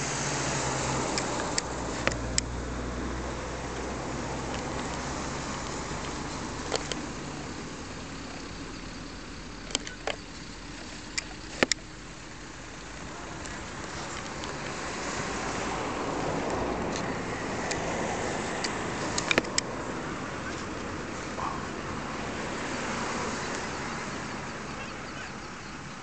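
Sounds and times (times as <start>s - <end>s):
car driving past: 0.0s - 8.2s, 13.0s - 25.5s
sharp clicks: 0.8s - 2.6s, 3.7s - 7.8s, 8.4s - 12.0s, 13.4s - 19.8s.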